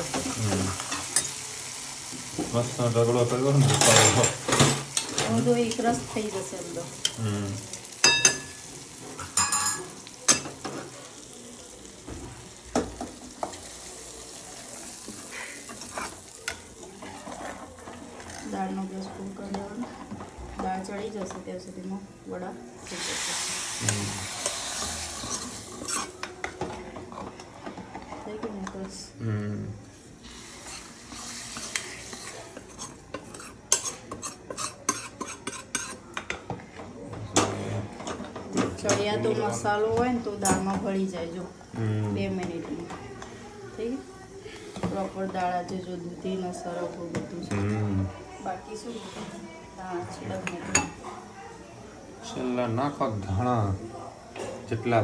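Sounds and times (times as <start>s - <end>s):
faint sizzle: 0.0s - 55.0s
metal spoon scraping in pan: 14.3s - 21.4s, 22.9s - 28.7s, 30.2s - 36.3s.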